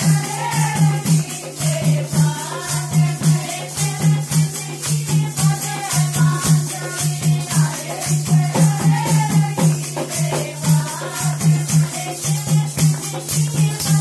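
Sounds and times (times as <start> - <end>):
high rattling percussion: 0.0 - 14.0.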